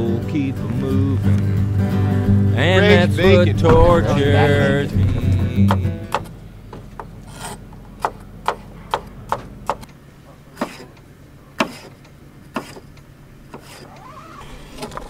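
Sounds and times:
knife chopping on plastic board: 10.6s - 10.9s, 11.6s - 12.8s.

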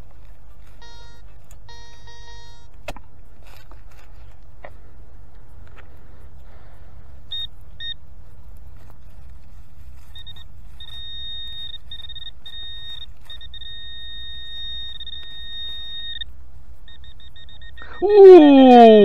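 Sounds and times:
metal detector beeping: 0.0s - 3.0s, 7.2s - 8.1s, 8.8s - 19.0s
low steady rumble: 0.0s - 19.0s.

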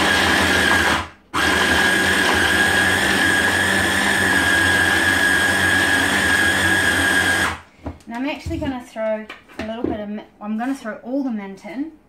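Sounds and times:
stick blender motor whining: 0.0s - 7.6s.

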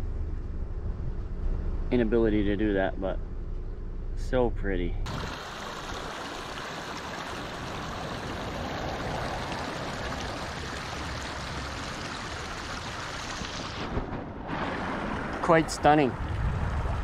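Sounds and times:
creek running over rocks: 5.1s - 13.8s.

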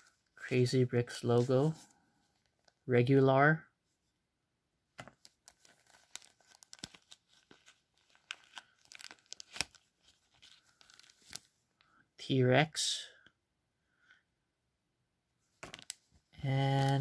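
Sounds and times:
stickers crinkling: 5.4s - 11.5s.

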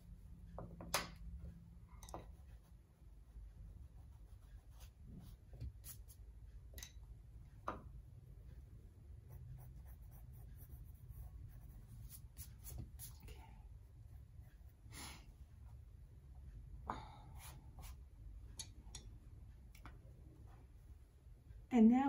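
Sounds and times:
pencil scratching on paper: 2.2s - 6.2s, 9.1s - 14.9s.

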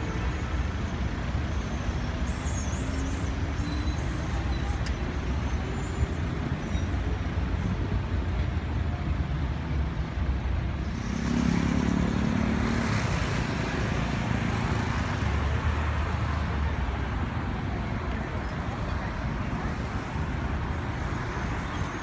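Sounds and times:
traffic rumble: 0.0s - 22.0s.

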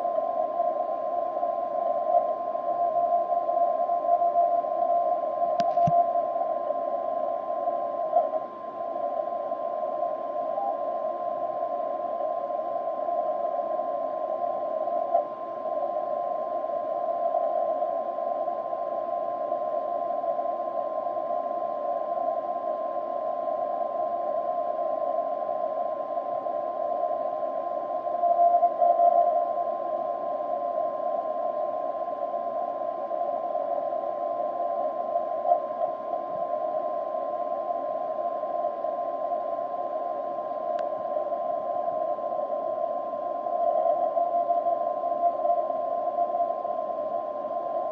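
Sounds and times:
radio band noise hiss: 0.0s - 24.2s.

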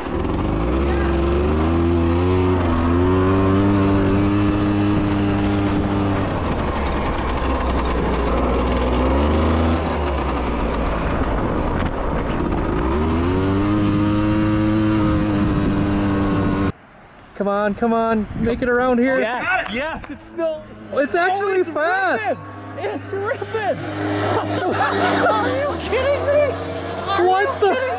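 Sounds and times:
atv engine at full throttle: 0.0s - 16.8s, 19.2s - 27.9s.

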